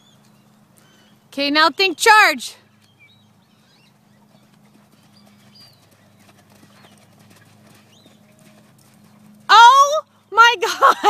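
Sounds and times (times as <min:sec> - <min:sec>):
steady low hum: 0:02.6 - 0:11.0
horse hoofbeats on sand: 0:03.5 - 0:10.0.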